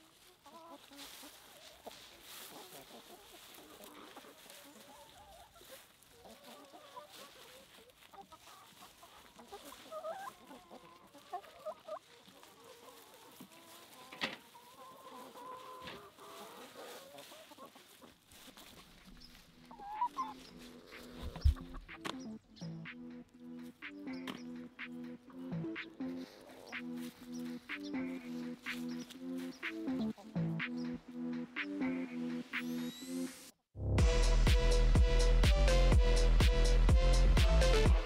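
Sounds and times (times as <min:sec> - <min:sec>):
chickens clucking: 0:00.0 - 0:33.0.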